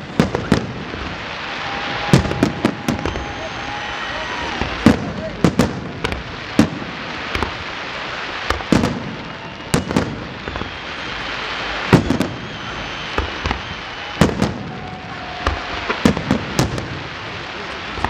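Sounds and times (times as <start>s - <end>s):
fireworks bursting in sharp bangs: 0.0s - 18.0s
fireworks crackling hiss: 0.0s - 18.0s
faint high whistles: 1.6s - 4.7s, 9.1s - 16.0s.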